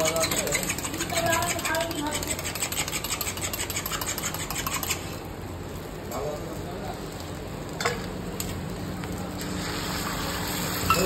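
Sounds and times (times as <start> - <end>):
spoon beating eggs in metal tin: 0.0 - 5.0
omelettes sizzling on griddle: 0.0 - 11.0.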